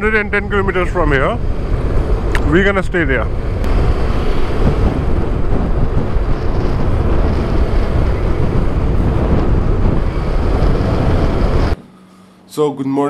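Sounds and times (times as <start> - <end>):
wind buffeting microphone: 0.0 - 11.8
motorcycle engine: 3.2 - 12.4.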